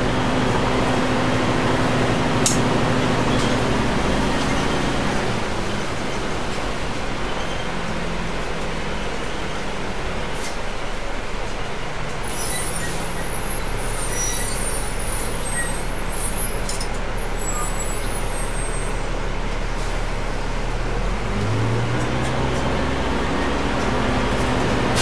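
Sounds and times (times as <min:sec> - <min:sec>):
bus engine hum: 0:00.0 - 0:25.0
road noise: 0:00.0 - 0:25.0
high-pitched hissing and squeaks: 0:12.2 - 0:19.1.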